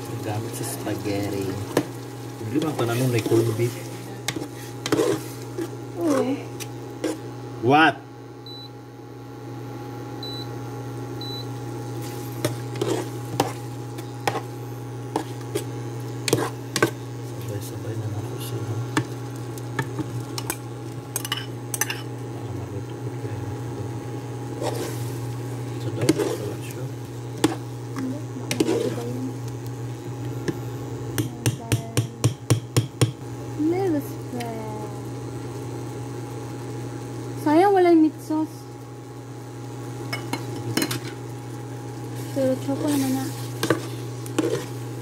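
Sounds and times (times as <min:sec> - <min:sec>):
cooker humming: 0:00.0 - 0:45.0
cooktop beeping: 0:08.4 - 0:09.0, 0:10.1 - 0:14.6, 0:18.4 - 0:22.2, 0:40.0 - 0:41.4
ladle stirring sauce: 0:12.0 - 0:14.5, 0:15.1 - 0:17.4, 0:24.6 - 0:27.7, 0:42.2 - 0:44.8.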